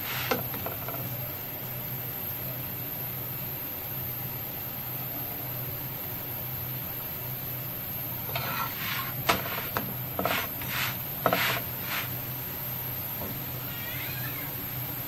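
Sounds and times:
metal spatula scraping griddle: 8.3 - 12.1.

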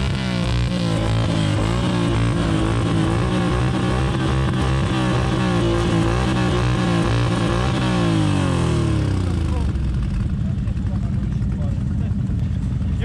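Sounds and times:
atv engine revving: 0.0 - 13.0.

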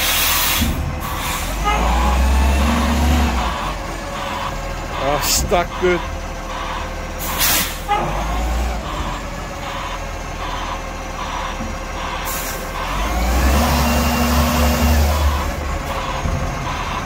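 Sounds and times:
air brake hiss: 0.0 - 1.6, 7.2 - 7.8
engine revving with whine: 0.0 - 17.0
garbage truck diesel engine: 0.0 - 17.0.

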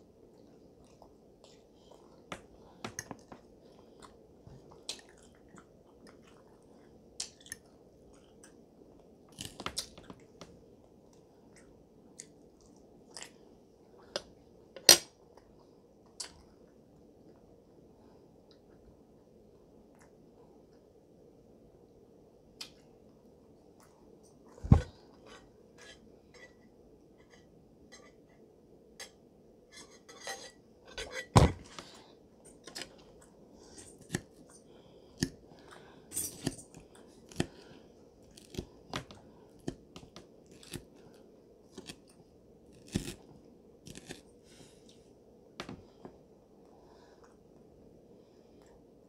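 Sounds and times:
chewing and mouth noises: 3.0 - 10.4.

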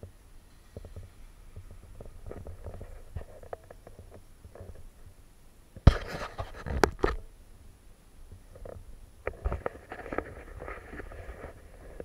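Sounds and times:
rubbing on camera: 5.9 - 7.0, 9.3 - 12.0.

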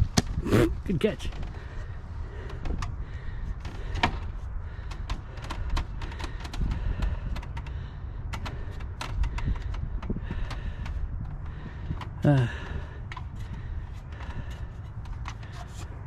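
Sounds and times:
steady low rumble: 0.0 - 16.0
sharp knocks and clicks: 3.6 - 15.9.

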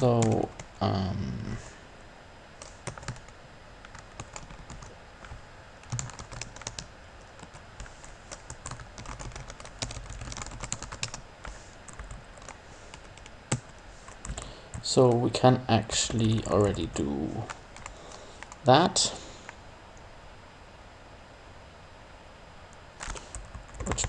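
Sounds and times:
typing on computer keyboard: 2.6 - 11.2, 11.9 - 14.8, 23.0 - 24.0.

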